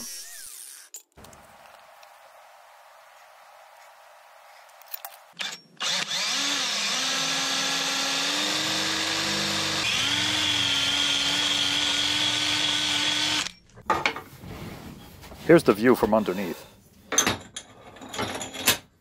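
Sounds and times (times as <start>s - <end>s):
power drill whining: 0.0s - 2.1s, 4.8s - 13.6s.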